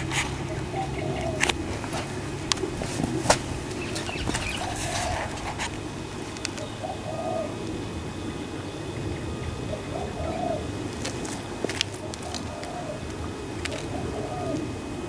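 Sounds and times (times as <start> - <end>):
dove cooing: 0.0 - 15.0
sharp clicks: 6.4 - 6.7.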